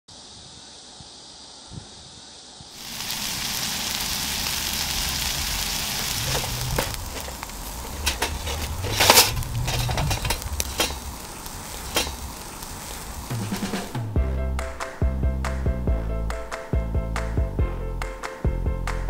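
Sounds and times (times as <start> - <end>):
meat sizzling on a grill: 2.7 - 14.1
fat crackling and popping: 2.8 - 14.8.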